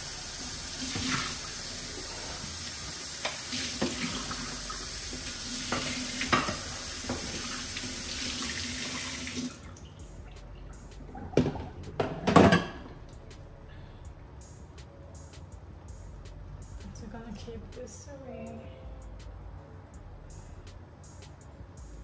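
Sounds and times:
tap running into sink: 0.8s - 1.4s, 3.2s - 4.4s, 5.1s - 9.5s.

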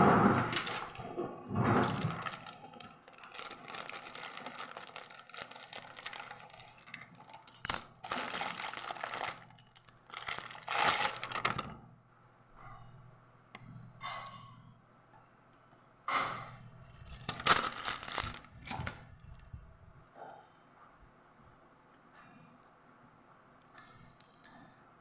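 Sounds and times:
plastic crinkling: 0.4s - 11.8s, 17.0s - 19.1s.

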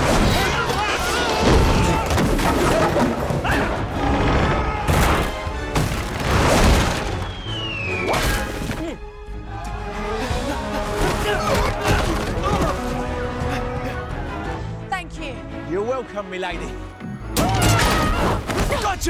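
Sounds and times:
wooden timbers smashing: 0.0s - 7.3s
orchestral score: 0.2s - 19.0s
falling whistle-like tone: 7.2s - 8.2s.

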